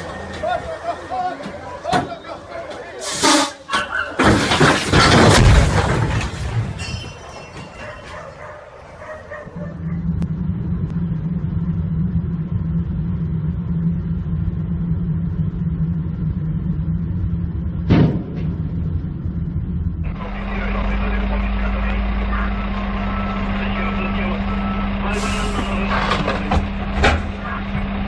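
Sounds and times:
car engine and road noise: 0:00.0 - 0:28.0
loud metal crash: 0:04.2 - 0:07.8, 0:17.8 - 0:18.8.

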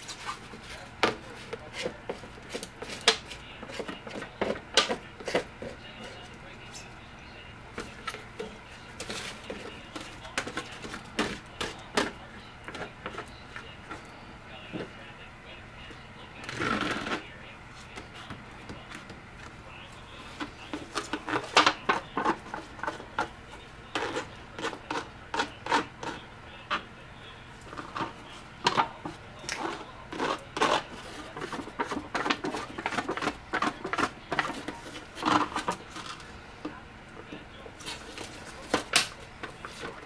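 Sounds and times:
scraping in a foil pan: 0:00.0 - 0:06.9, 0:07.7 - 0:14.1, 0:20.0 - 0:26.2, 0:27.6 - 0:36.6, 0:37.6 - 0:40.0
foil crackling: 0:27.6 - 0:36.4.

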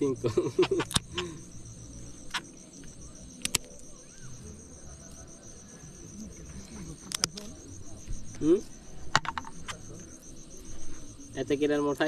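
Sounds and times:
insects chirring: 0:00.0 - 0:12.0
sharp clicks: 0:00.6 - 0:01.3, 0:02.2 - 0:03.9, 0:07.0 - 0:07.6.

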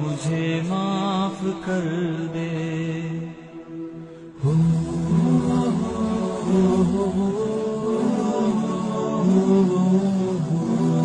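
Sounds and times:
person singing slow melody: 0:00.0 - 0:11.0.

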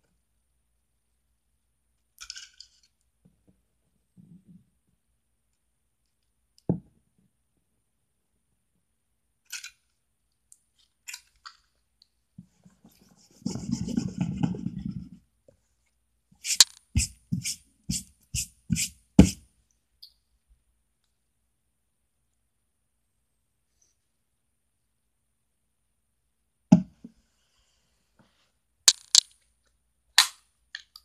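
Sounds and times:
rubbing play dough: 0:12.4 - 0:15.3, 0:16.3 - 0:19.6.

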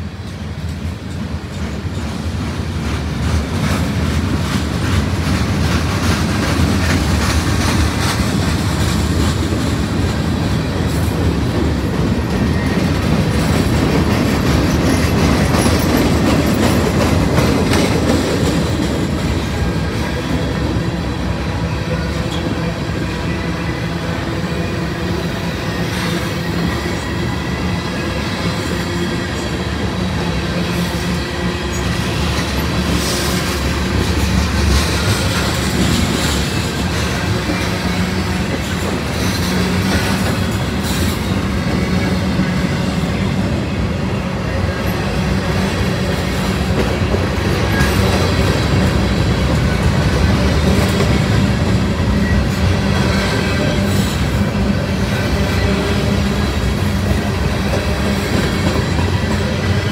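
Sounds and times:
freight train wheels rumbling: 0:00.0 - 0:59.9
train cars clattering: 0:00.0 - 0:59.9.

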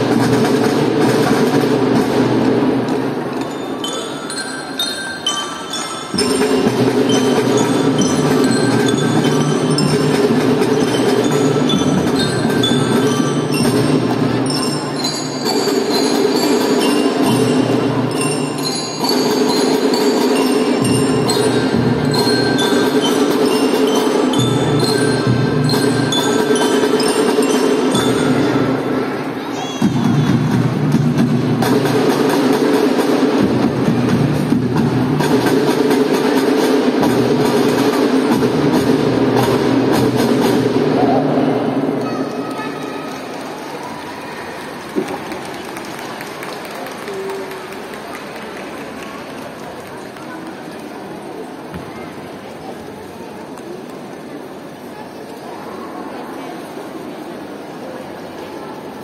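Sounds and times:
marching drums: 0:00.0 - 0:03.3, 0:05.7 - 0:29.0, 0:29.8 - 0:42.0
bell-like mallet notes: 0:03.4 - 0:29.0.

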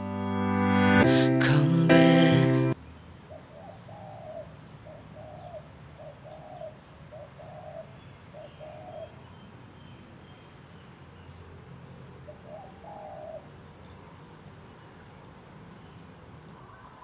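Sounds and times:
dove cooing: 0:03.7 - 0:09.2, 0:12.4 - 0:13.5.

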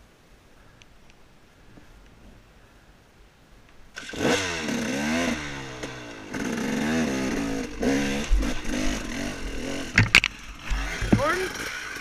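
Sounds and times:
dirt bike engine revving: 0:04.0 - 0:12.0.

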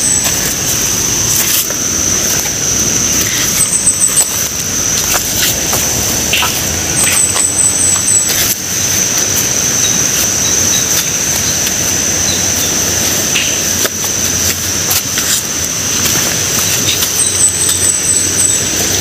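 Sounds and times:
repeated chirps: 0:00.0 - 0:00.9, 0:03.1 - 0:09.0, 0:16.6 - 0:19.0
high-pitched insect buzz: 0:00.0 - 0:19.0
steady rushing outdoor noise: 0:00.0 - 0:19.0.

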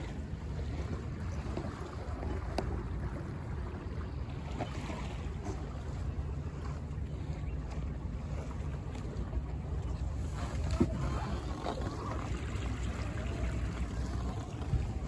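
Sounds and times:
water rushing along hull: 0:00.0 - 0:15.0
wind buffeting microphone: 0:09.0 - 0:15.0.

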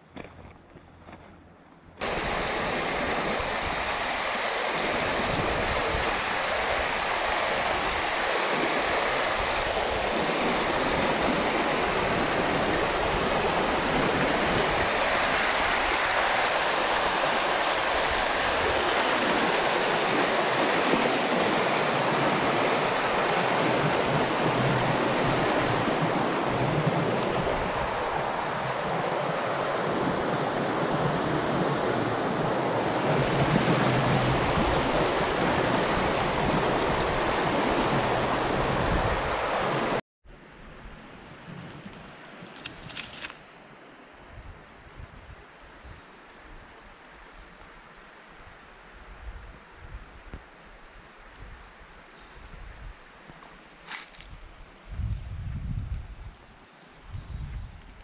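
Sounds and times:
river water rushing over rocks: 0:02.0 - 0:40.0.

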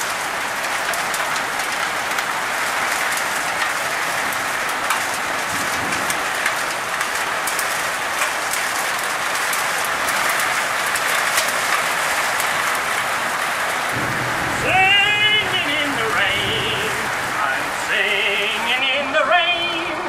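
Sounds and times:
heavy rain on wet ground: 0:00.0 - 0:20.0.

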